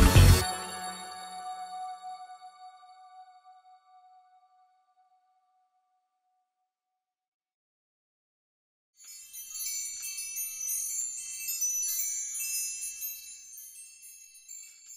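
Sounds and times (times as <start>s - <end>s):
tinkling metal chimes: 9.0s - 14.9s.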